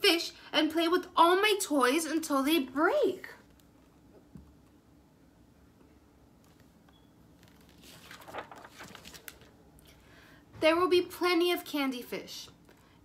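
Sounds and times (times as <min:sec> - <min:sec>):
paper rustling as page turned: 0:07.4 - 0:09.6.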